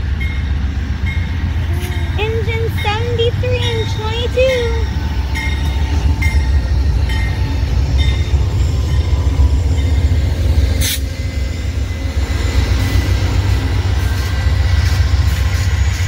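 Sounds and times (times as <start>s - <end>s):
diesel locomotive rumble: 0.0s - 16.0s
train wheels on rails: 0.0s - 16.0s.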